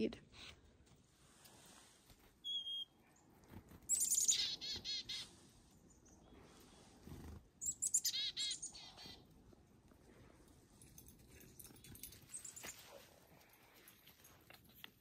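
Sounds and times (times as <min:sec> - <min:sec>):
chickadee calls: 0:03.9 - 0:05.4, 0:07.6 - 0:09.2.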